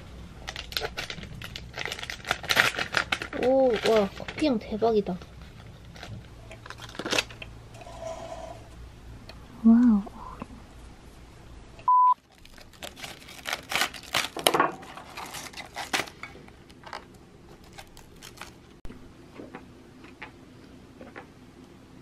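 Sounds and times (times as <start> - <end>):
short electronic beep: 11.8 - 12.2.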